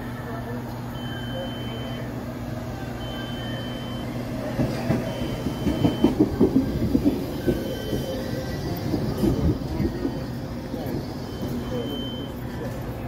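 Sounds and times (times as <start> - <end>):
train hum: 0.0 - 13.0
high beep: 1.0 - 2.1, 3.0 - 4.2, 11.3 - 12.4
train wheels clattering over joints: 4.6 - 11.3.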